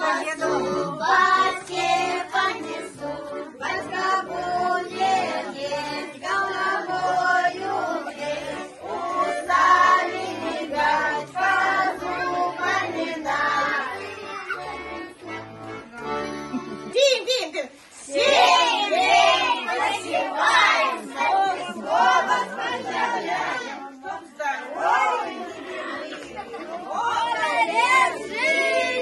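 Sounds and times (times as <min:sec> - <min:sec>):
children singing a carol: 0:00.0 - 0:16.8, 0:17.9 - 0:29.0
button accordion playing: 0:00.0 - 0:17.3, 0:18.3 - 0:24.0.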